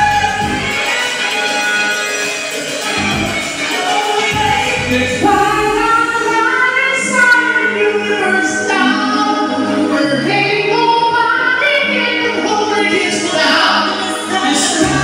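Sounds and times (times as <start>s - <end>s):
women singing into microphones: 0.0s - 1.8s, 2.8s - 15.0s
instrumental accompaniment with bass: 0.0s - 15.0s.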